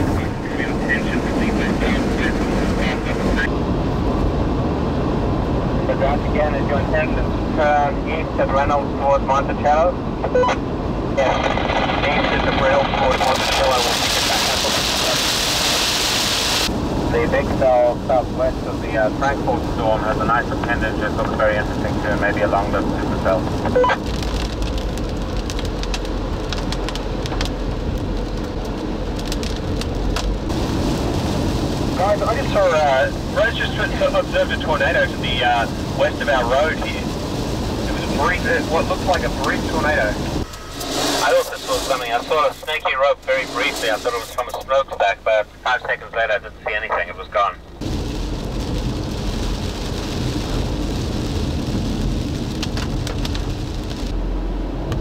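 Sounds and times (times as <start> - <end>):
rain: 0.0 - 55.0
vehicle road and engine rumble: 0.0 - 55.0
wind: 0.0 - 55.0
raindrops tapping on car: 22.8 - 40.3, 47.8 - 54.1.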